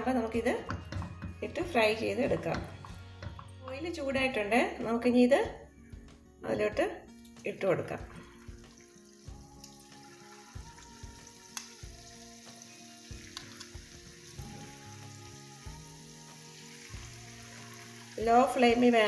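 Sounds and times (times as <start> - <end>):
quiet background music: 0.0 - 19.0
battered food sizzling in oil: 8.2 - 19.0.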